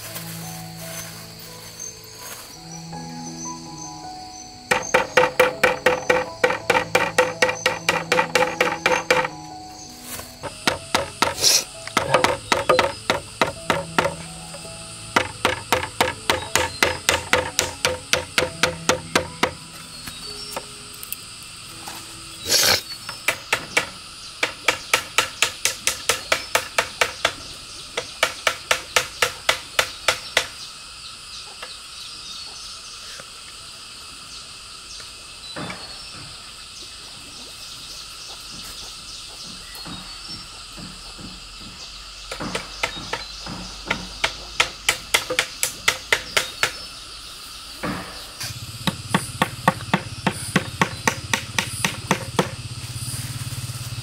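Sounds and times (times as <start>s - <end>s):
insects chirring: 0.0s - 54.0s
hammering nails into bamboo: 4.7s - 9.5s, 10.1s - 19.7s, 22.5s - 30.6s, 38.5s - 46.9s, 47.8s - 52.7s.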